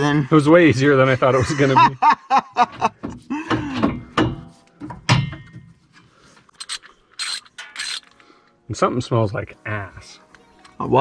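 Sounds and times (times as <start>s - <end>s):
men talking: 0.0s - 2.2s, 8.7s - 11.0s
men chuckling: 1.2s - 3.8s.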